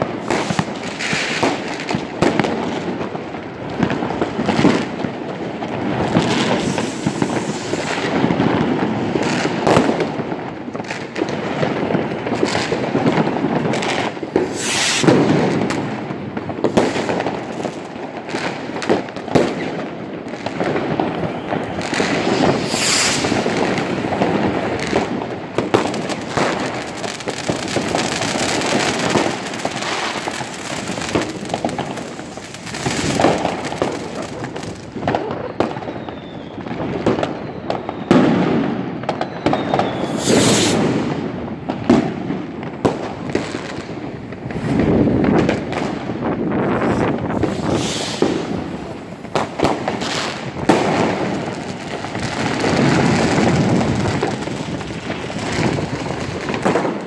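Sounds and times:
firecracker bangs: 0.0 - 3.1, 3.8 - 57.0
hissing rocket rushes: 6.0 - 9.5, 14.4 - 15.6, 21.8 - 25.0, 39.9 - 41.1, 46.8 - 49.3.

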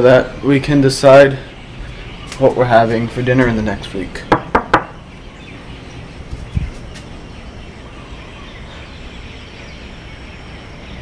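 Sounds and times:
outdoor evening background noise: 0.0 - 11.0
faint bird chirps: 4.9 - 11.0.

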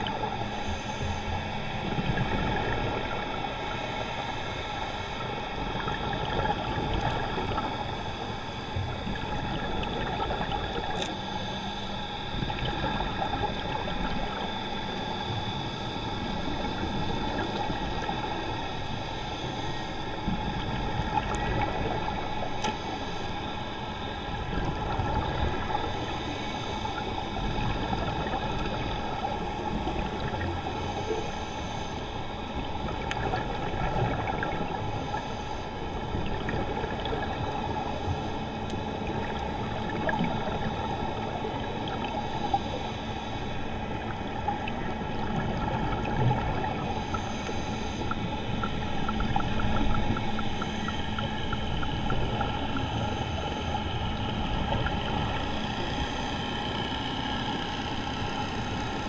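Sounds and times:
faint steady tones: 0.0 - 59.0
underwater rumble and hiss: 0.0 - 59.0.

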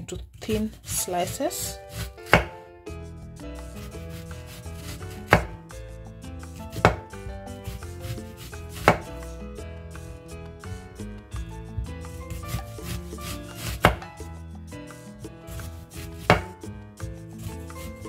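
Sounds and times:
knife knocking on cutting board: 2.3 - 2.6, 5.3 - 5.6, 6.7 - 7.2, 8.8 - 9.1, 13.6 - 14.1, 16.2 - 16.6.

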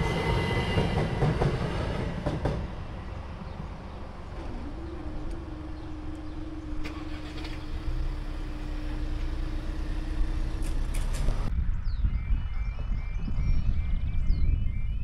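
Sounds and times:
crossing barriers humming: 0.0 - 11.5
birds chirping: 2.6 - 15.0
cars pulling away: 3.4 - 11.5.

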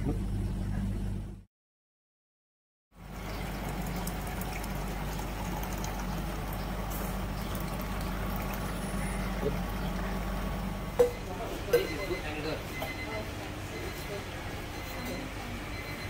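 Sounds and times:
low steady hum: 0.0 - 1.4
milk pouring into tin mug: 3.1 - 10.4.

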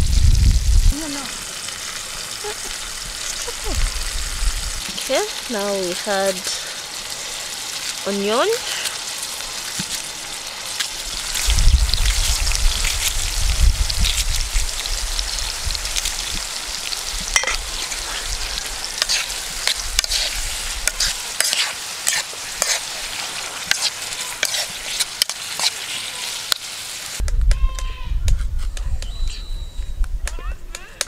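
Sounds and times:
low rumble: 0.0 - 1.0, 2.8 - 4.9, 11.2 - 16.0
vegetables sizzling in oil: 0.0 - 27.2
metal spoon scraping a pot: 19.0 - 23.0, 23.6 - 25.9.

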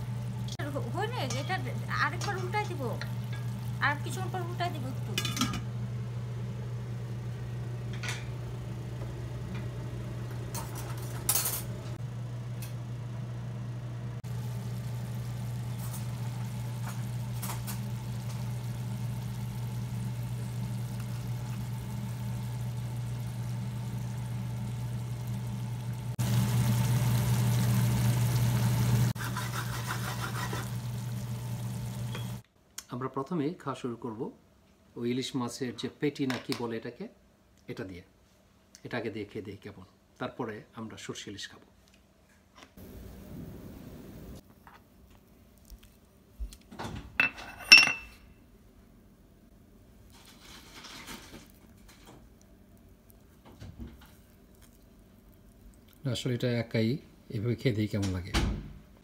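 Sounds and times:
steady low hum: 0.0 - 29.2.

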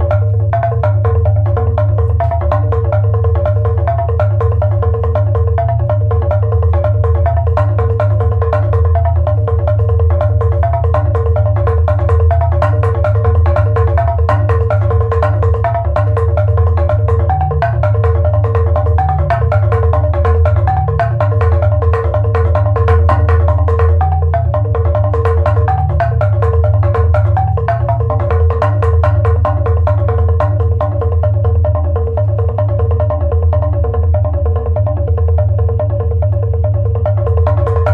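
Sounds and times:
mallet percussion notes: 0.0 - 37.9.

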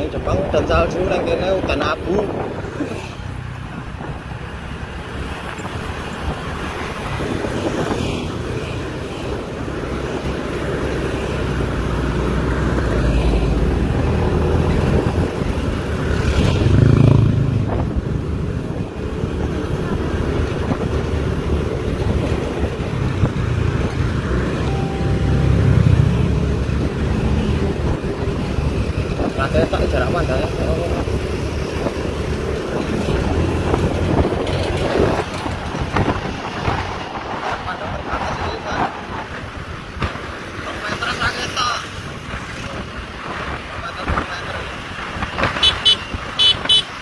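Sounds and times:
vehicle engine and tyre noise: 0.0 - 47.0
truck passing close: 22.0 - 29.3.

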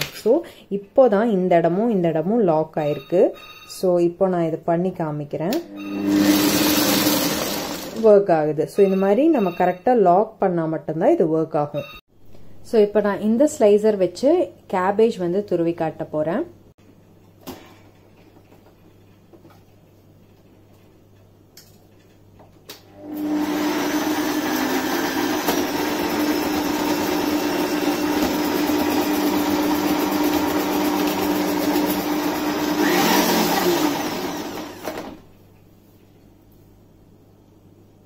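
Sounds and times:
food processor motor humming: 5.6 - 8.0, 22.9 - 35.2.

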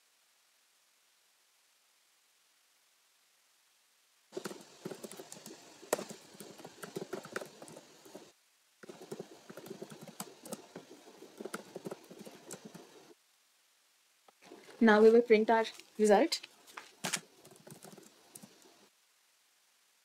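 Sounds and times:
keyboard key clicks: 4.4 - 8.2.

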